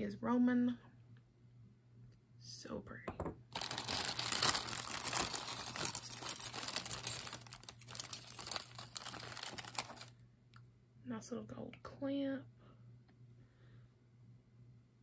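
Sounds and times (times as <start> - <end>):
plastic bag crinkling: 3.5 - 10.1
metal bracelets jingling: 3.6 - 10.0.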